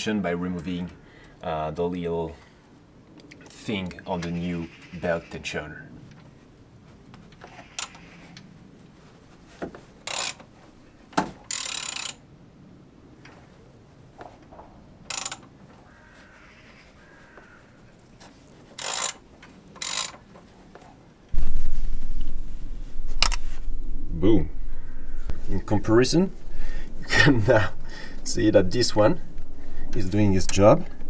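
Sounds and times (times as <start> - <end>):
ratchet wrench clicking: 10.1 - 10.4, 11.5 - 12.2, 15.1 - 15.4, 18.8 - 19.2, 19.8 - 20.2.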